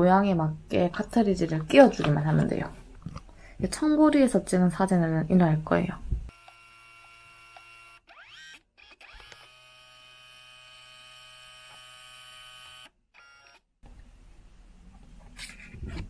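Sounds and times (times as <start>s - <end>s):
printer motor whine: 6.3s - 13.6s.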